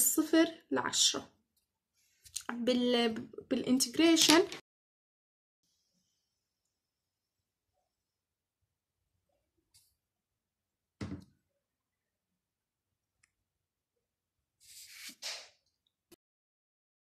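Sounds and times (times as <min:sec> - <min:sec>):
dull knock: 0:11.0 - 0:11.3.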